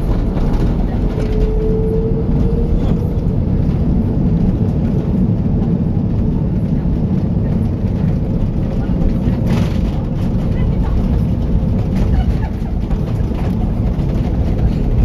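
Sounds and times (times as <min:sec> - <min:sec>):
engine and landing gear rumble: 0:00.0 - 0:15.0.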